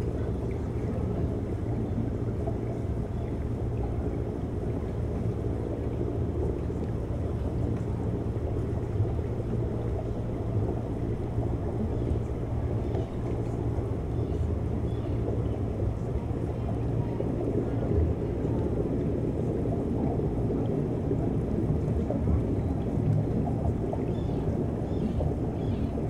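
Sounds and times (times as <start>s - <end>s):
faint crackles underwater: 0.0s - 26.0s
low rumble of moving water: 0.0s - 26.0s.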